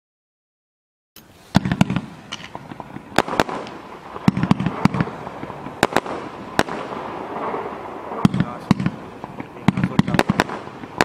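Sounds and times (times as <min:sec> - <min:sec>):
firework bangs: 0:01.2 - 0:11.0
firework hiss: 0:01.2 - 0:11.0.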